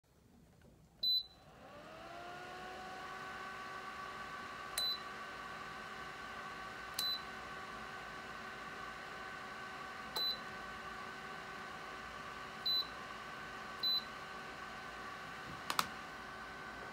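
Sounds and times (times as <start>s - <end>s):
heater fan whirring: 0.8s - 16.9s
heater beeping: 1.0s - 7.8s, 9.4s - 11.2s, 12.4s - 16.9s.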